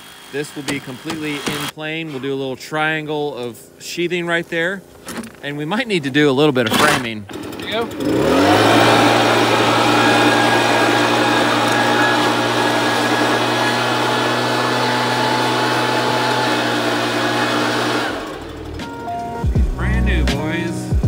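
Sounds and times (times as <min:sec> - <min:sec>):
leaf blower running: 0:00.0 - 0:01.8, 0:06.8 - 0:19.3.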